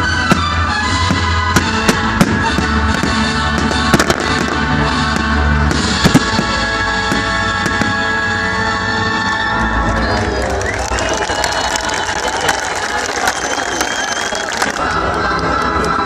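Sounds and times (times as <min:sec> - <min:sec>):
fireworks bursting with sharp bangs: 0:00.0 - 0:08.2
loud music: 0:00.0 - 0:16.0.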